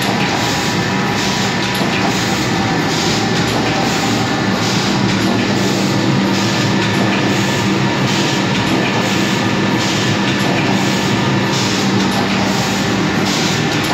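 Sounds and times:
printing press machine hum: 0.0 - 13.9
rushing sound of sheet conveyor: 0.0 - 13.9.

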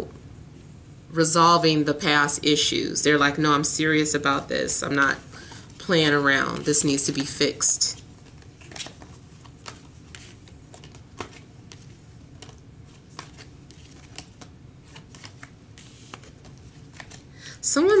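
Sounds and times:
cards being shuffled: 5.5 - 17.3.

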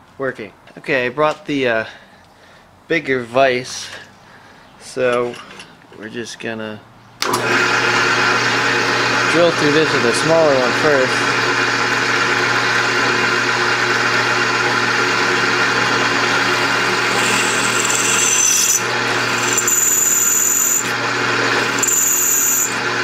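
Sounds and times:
drill press running: 7.2 - 23.0
drill bit squealing: 14.7 - 23.0.

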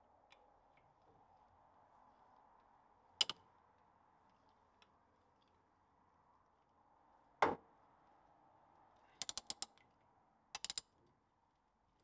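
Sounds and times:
socket ratchet clicking: 9.2 - 9.7, 10.6 - 10.9.

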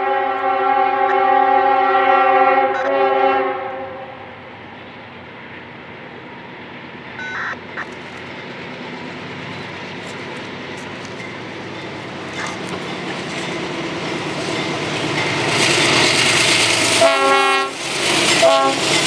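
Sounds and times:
locomotive horn blast: 0.0 - 4.3, 16.9 - 17.8, 18.4 - 18.9
train engines rumbling: 0.0 - 19.0.

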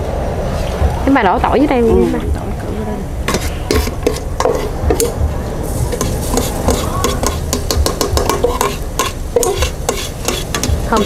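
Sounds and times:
metal ladle scraping a steel bowl: 3.3 - 5.2, 5.9 - 11.0
garlic sizzling in hot oil: 3.3 - 11.0.

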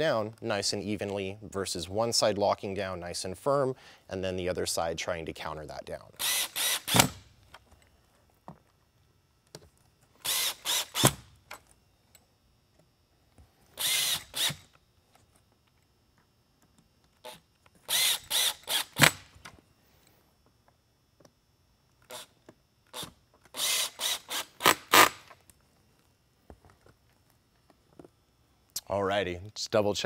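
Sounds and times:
cordless drill driving screws: 6.2 - 7.2, 10.2 - 11.3, 13.8 - 14.8, 17.2 - 19.3, 22.1 - 22.3, 22.9 - 25.3.

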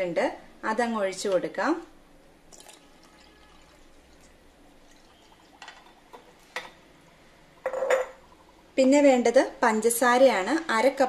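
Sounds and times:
milk pouring into metal jar: 2.5 - 6.2.

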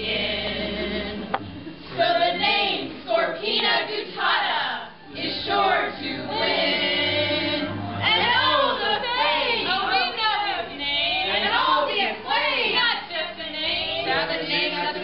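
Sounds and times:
voices singing together: 0.0 - 15.0
musical accompaniment: 4.9 - 10.6.

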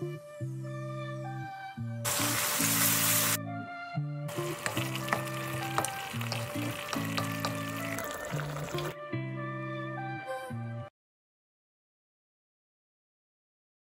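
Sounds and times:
background music: 0.0 - 10.9
fish sizzling in hot oil: 2.1 - 3.4, 4.3 - 9.0.

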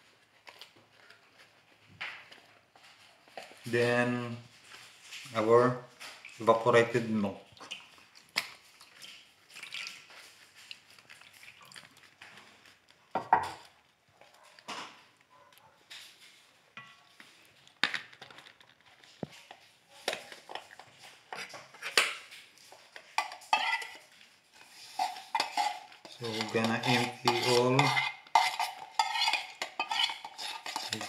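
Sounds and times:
liquid pouring into metal bowl: 7.4 - 12.1.

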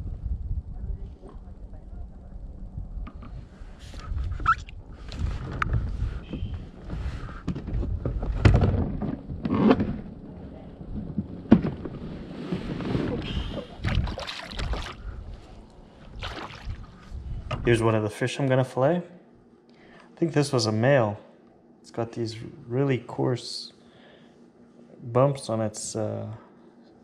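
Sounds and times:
clunks and knocks in kayak: 11.0 - 12.0.

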